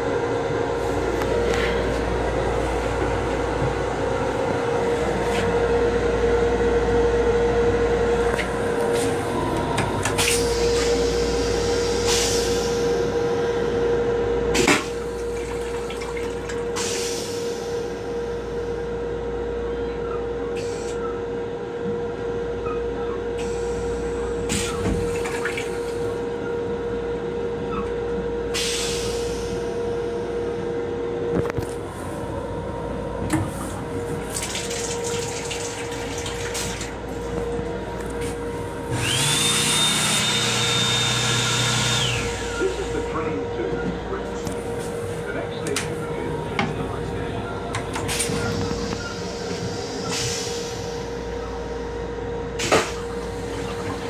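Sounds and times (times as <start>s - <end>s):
toilet flushing: 14.6s - 17.4s, 34.1s - 37.2s.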